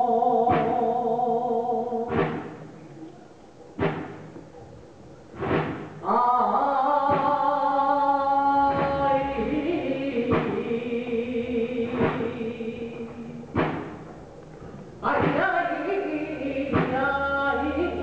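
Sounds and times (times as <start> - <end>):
man singing flamenco: 15.0 - 18.0.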